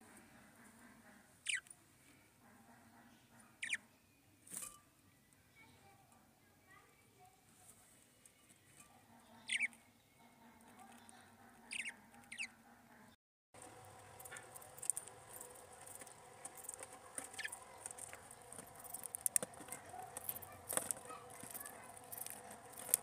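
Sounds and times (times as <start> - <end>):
budgerigars chirping: 1.4 - 1.7, 3.5 - 3.9, 9.3 - 9.8, 11.6 - 12.7, 14.0 - 23.0
light clicking and scratching: 13.6 - 23.0.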